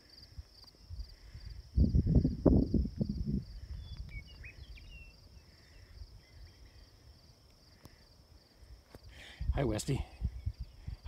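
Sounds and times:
pulsing insect trill: 0.0s - 11.0s.

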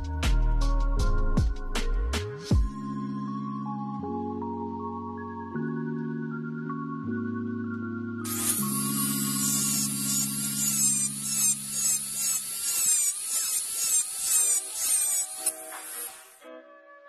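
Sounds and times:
rotary tool grinding metal: 8.3s - 16.4s.

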